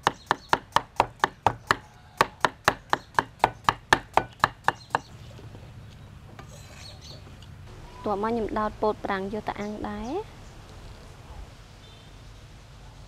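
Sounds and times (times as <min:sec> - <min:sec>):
cleaver chopping on wooden board: 0:00.0 - 0:05.1.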